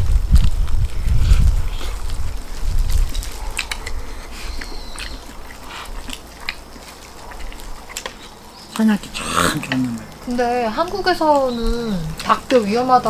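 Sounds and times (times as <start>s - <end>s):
chewing: 0.4s - 12.8s
small clicks and smacks: 2.9s - 4.0s, 4.6s - 8.9s
meat torn off bone: 2.9s - 8.4s, 9.1s - 10.2s.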